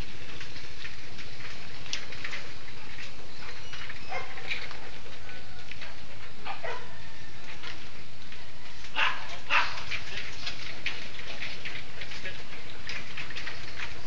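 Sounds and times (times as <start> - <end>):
dogs barking: 4.0 - 5.4, 6.3 - 7.1, 8.9 - 12.5.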